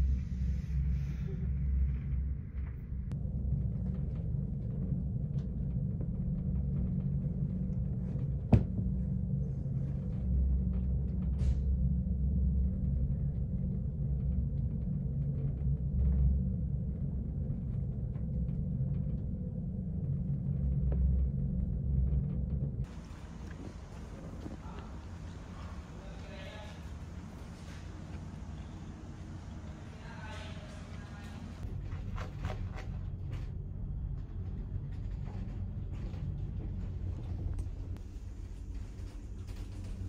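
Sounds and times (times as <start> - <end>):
ship engine rumble: 0.0 - 40.0.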